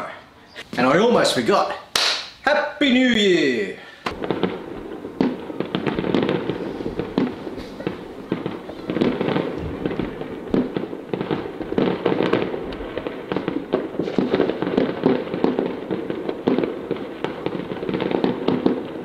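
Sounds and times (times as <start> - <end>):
fireworks bangs and crackles: 4.1 - 19.0.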